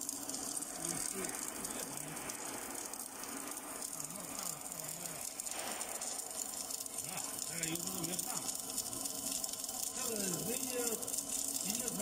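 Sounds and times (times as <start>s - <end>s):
welding arc crackling: 0.0s - 12.0s.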